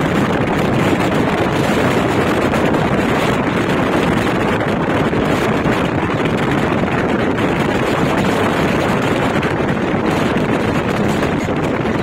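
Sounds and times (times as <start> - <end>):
train running at speed: 0.0 - 12.0.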